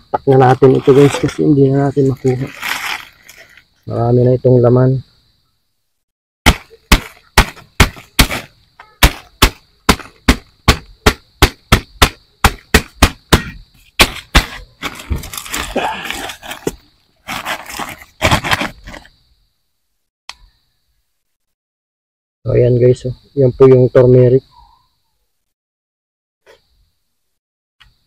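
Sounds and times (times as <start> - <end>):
soil scraping: 0.4 - 3.8, 13.8 - 19.2
rustling plastic: 2.0 - 3.6, 14.8 - 19.0
thumps on soil-filled sack: 6.4 - 19.0.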